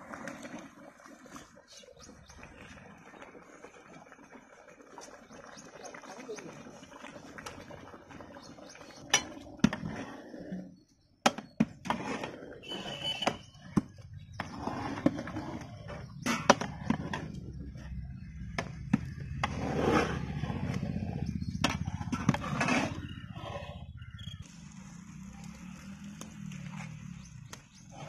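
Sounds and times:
metal ladle scraping cooking pot: 0:11.4 - 0:17.6, 0:21.6 - 0:23.9.

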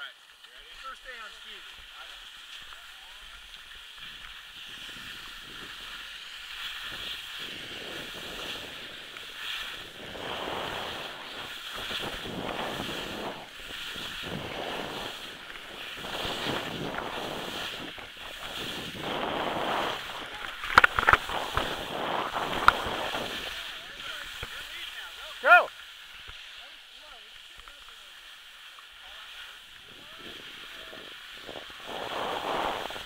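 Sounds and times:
skis scraping over snow: 0:00.0 - 0:33.0
wind buffeting microphone: 0:06.8 - 0:24.5, 0:29.8 - 0:33.0.

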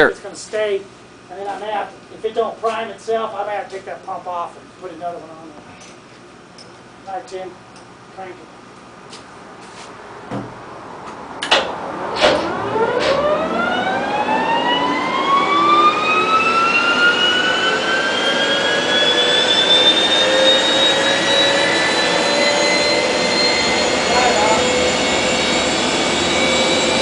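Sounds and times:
gas turbine whine rising: 0:06.4 - 0:27.0.

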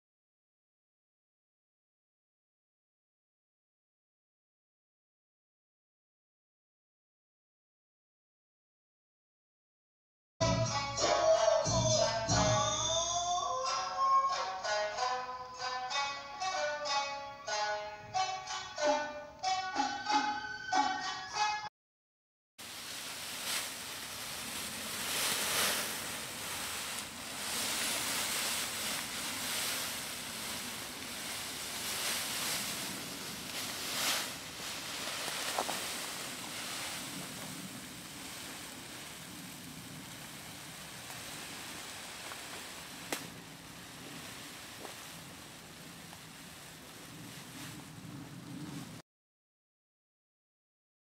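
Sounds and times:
plastic sheeting crinkling: 0:22.6 - 0:49.0.

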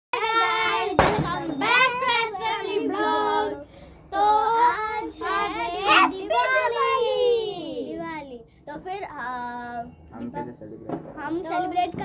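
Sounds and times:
children singing: 0:00.2 - 0:07.9
sharp clap: 0:00.9 - 0:01.7.

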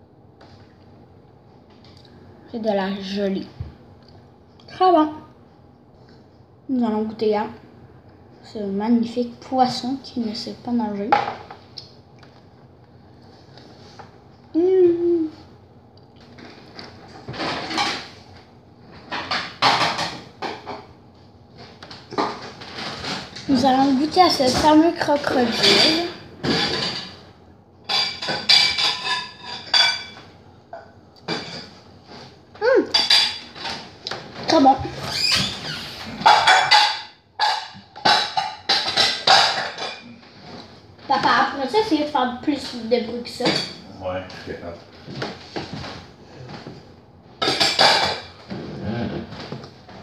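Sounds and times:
dishes clattering: 0:16.8 - 0:18.2, 0:18.9 - 0:20.9, 0:21.9 - 0:31.8, 0:32.9 - 0:34.8, 0:36.2 - 0:41.5, 0:43.4 - 0:43.8, 0:47.4 - 0:50.0.

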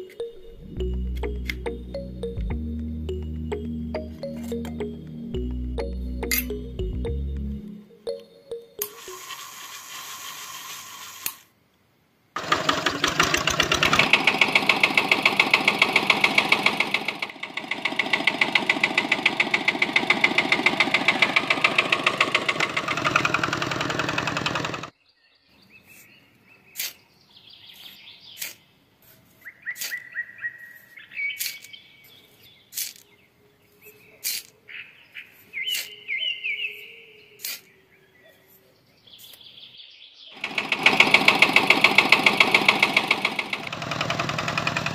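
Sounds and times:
sharp clicks: 0:00.9 - 0:01.9
toy motor buzzing rattle: 0:08.8 - 0:11.5, 0:40.4 - 0:44.9
birds chirping: 0:23.5 - 0:40.5.

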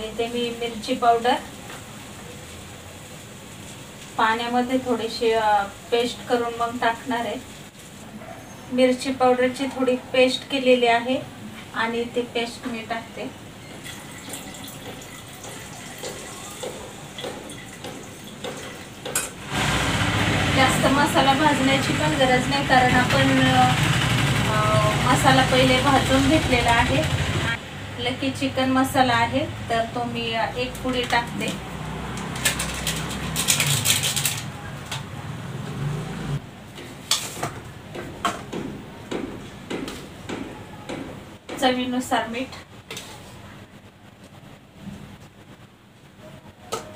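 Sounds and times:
plastic packet crinkling: 0:32.3 - 0:34.5.

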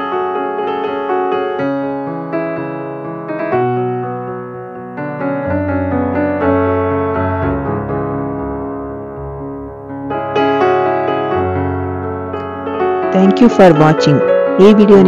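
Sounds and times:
gentle piano tune: 0:00.0 - 0:15.0.

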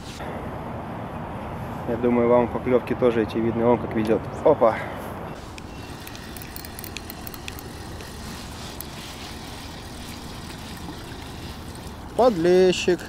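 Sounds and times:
fishing reel handling clicks: 0:05.5 - 0:09.0.

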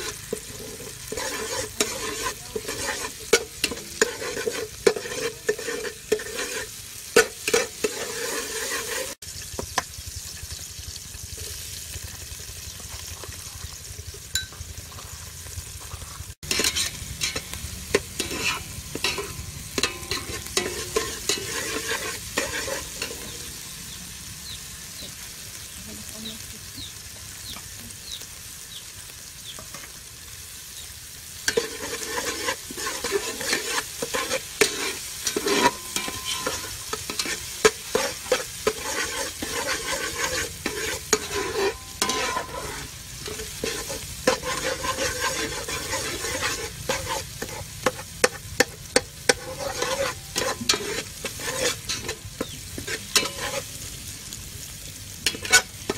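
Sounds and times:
ladle scraping a metal pot: 0:00.0 - 0:09.2, 0:16.4 - 0:23.4, 0:31.5 - 0:53.7, 0:55.2 - 0:55.9
food sizzling in hot oil: 0:00.0 - 0:55.9.

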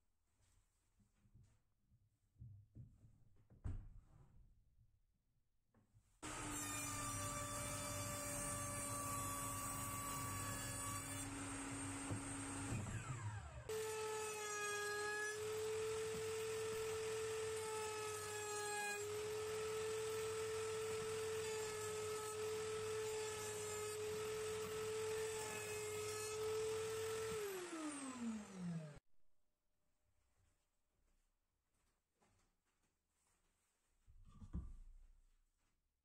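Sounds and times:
router bit cutting wood: 0:06.2 - 0:29.0
router whining: 0:11.0 - 0:18.2, 0:19.0 - 0:29.0
motor spinning down: 0:27.4 - 0:29.0.

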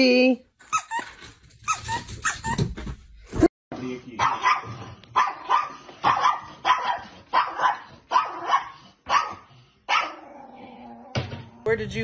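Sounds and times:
small dog barking: 0:04.2 - 0:10.2.

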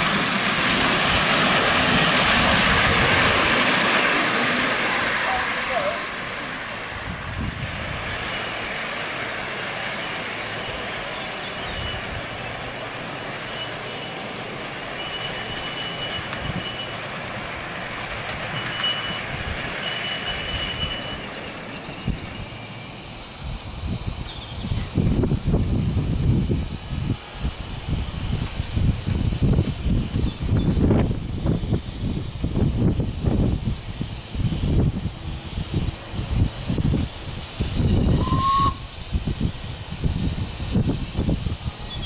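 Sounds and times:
train wheels rumbling on track: 0:00.0 - 0:42.0
thin high squeal: 0:09.9 - 0:12.4, 0:13.4 - 0:17.4, 0:18.4 - 0:23.1, 0:37.6 - 0:38.9.

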